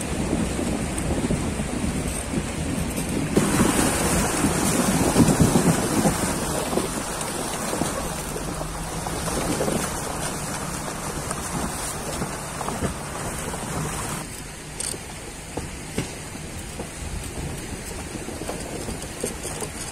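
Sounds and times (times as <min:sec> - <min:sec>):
heavy low engine rumble: 0:00.0 - 0:19.9
water rushing and splashing: 0:00.0 - 0:19.9.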